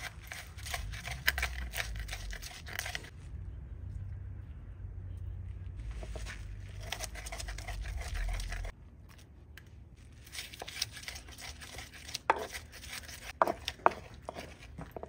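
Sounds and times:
pestle grinding in clay bowl: 0:00.0 - 0:03.1, 0:06.0 - 0:08.7, 0:10.3 - 0:15.0.

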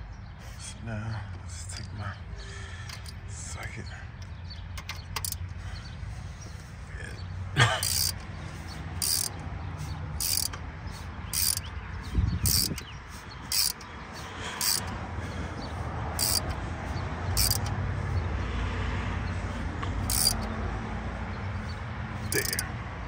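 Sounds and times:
socket ratchet clicking: 0:02.9 - 0:03.2, 0:04.7 - 0:05.5, 0:07.8 - 0:08.3, 0:09.0 - 0:09.4, 0:10.1 - 0:10.7, 0:11.3 - 0:11.8, 0:12.4 - 0:13.9, 0:14.6 - 0:14.9, 0:16.2 - 0:16.6, 0:17.3 - 0:17.8, 0:20.0 - 0:20.5, 0:22.2 - 0:22.6.

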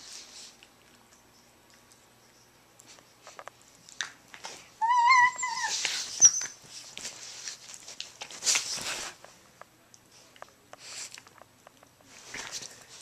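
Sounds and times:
scuffling of fur and bedding: 0:04.4 - 0:09.4
dog squeaking: 0:04.8 - 0:06.6
dog whining: 0:04.8 - 0:06.6.

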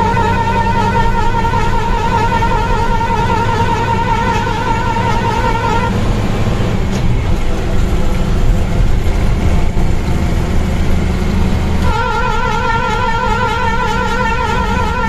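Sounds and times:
background music: 0:00.0 - 0:06.8
vehicle engine and road drone: 0:00.0 - 0:15.0.

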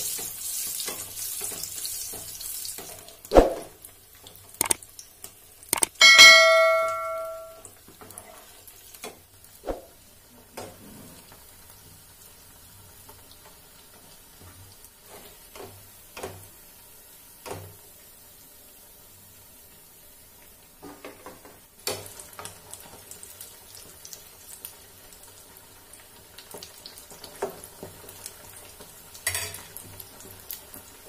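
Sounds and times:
food deep-frying in oil: 0:00.0 - 0:06.8, 0:07.6 - 0:31.0
metal spoon knocking against pan: 0:05.8 - 0:07.6
bell-like chime: 0:06.0 - 0:07.6.

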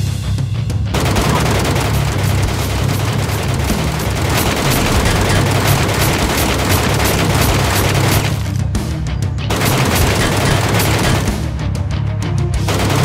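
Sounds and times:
background music: 0:00.0 - 0:13.0
rapid gunfire: 0:00.9 - 0:08.6, 0:09.5 - 0:11.6, 0:12.6 - 0:13.0.

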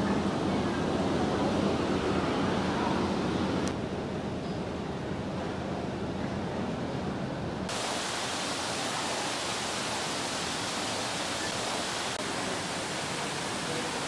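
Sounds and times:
steady rushing hiss: 0:07.7 - 0:14.0.

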